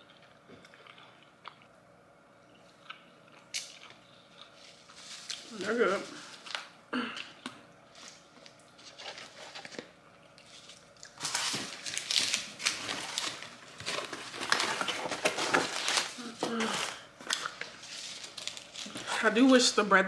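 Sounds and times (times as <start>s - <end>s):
packaging crinkling: 7.9s - 19.6s
crunching fried chicken: 8.1s - 19.1s.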